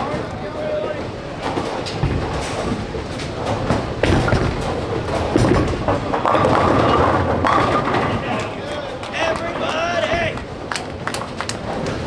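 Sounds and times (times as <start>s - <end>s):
bowling balls rolling: 0.0s - 12.0s
balls knocking pins: 1.4s - 8.6s.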